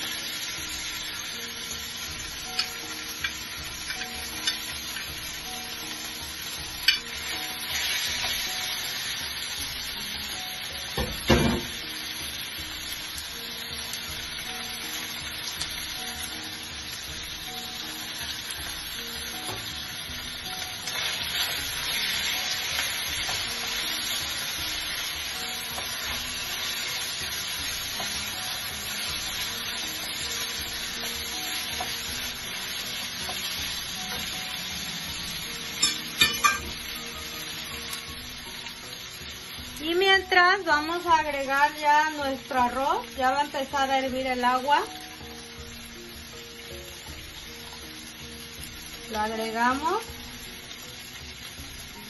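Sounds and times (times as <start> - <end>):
chicken sizzling in frying pan: 0.0 - 52.0
utensil clinking against pan: 35.8 - 36.8.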